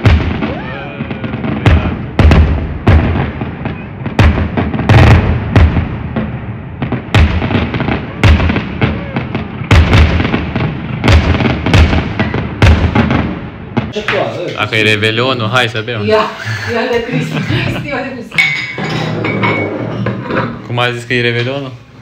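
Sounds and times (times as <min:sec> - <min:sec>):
fireworks bangs and booms: 0:00.0 - 0:19.6.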